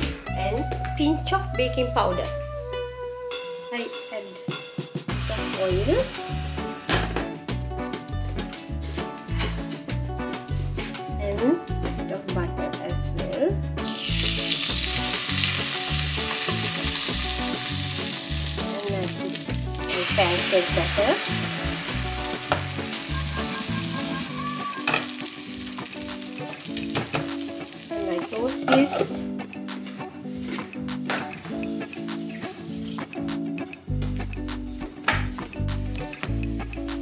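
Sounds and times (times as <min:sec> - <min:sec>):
batter sizzling in hot oil: 0:13.9 - 0:29.1, 0:31.3 - 0:33.3.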